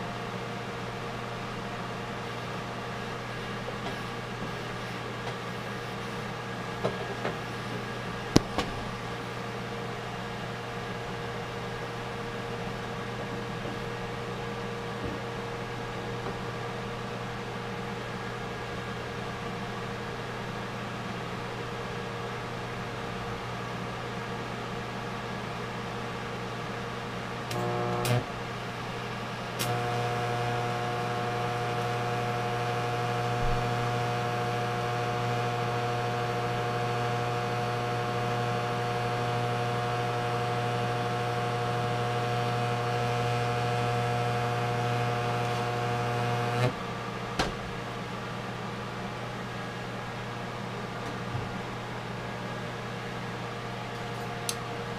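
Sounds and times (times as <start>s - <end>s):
welder humming: 0.0s - 9.5s, 27.1s - 47.0s
welding arc crackle and buzz: 8.2s - 9.0s, 27.4s - 46.8s.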